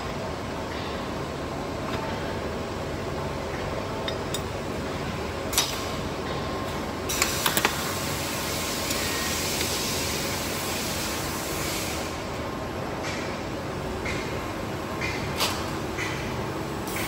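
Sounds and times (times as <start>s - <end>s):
workshop hum: 0.0s - 17.0s
hiss: 7.1s - 12.2s.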